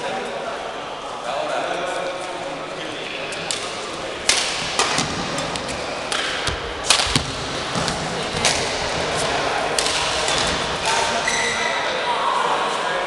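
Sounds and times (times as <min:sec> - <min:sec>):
rackets striking shuttlecock: 0:03.4 - 0:11.2.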